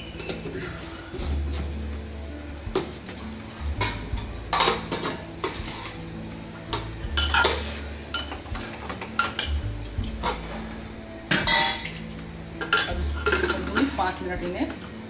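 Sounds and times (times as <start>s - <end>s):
oil sizzling: 0.0s - 15.0s.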